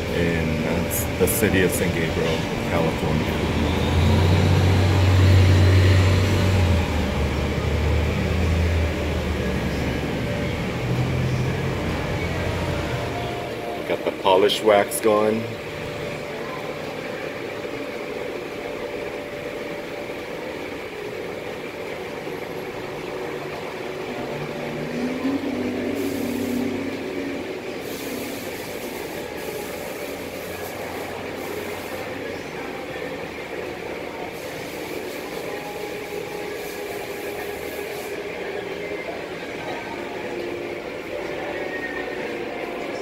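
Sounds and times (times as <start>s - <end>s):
pumps and motors humming: 0.0s - 43.0s
water spray hiss: 25.9s - 26.8s, 27.8s - 32.2s.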